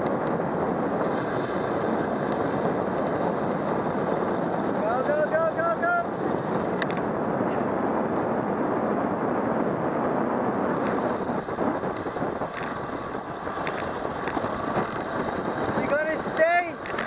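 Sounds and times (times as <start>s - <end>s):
tyre noise on asphalt: 0.0s - 17.0s
wind rushing over microphone: 0.0s - 17.0s
faint clicks: 11.9s - 12.8s, 13.5s - 15.0s, 16.4s - 17.0s.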